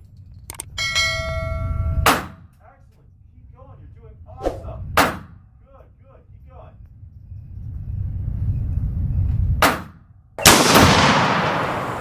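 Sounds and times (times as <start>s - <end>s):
low rumble: 4.1s - 5.0s
gunshots echoing indoors: 10.4s - 12.0s.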